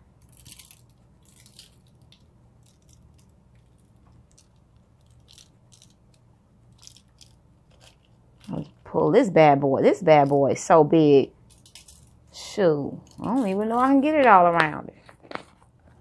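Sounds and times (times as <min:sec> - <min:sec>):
spice shaker rattling: 0:00.2 - 0:08.9, 0:11.4 - 0:12.3.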